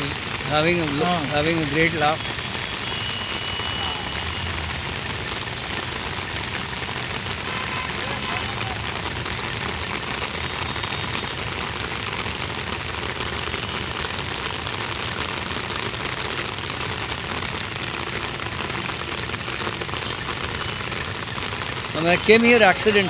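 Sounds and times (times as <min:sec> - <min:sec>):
heavy rain on umbrella: 0:00.0 - 0:23.0.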